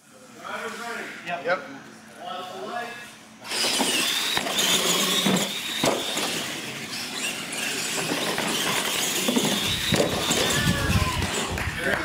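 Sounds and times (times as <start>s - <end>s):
electric motor whine: 3.4s - 12.0s
tyre noise on concrete: 7.9s - 12.0s.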